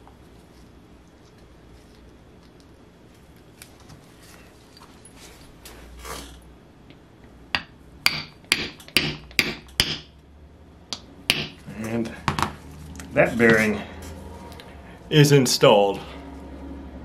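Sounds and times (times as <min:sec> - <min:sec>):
hammer tapping on wooden block: 0:07.6 - 0:10.1, 0:10.9 - 0:11.6.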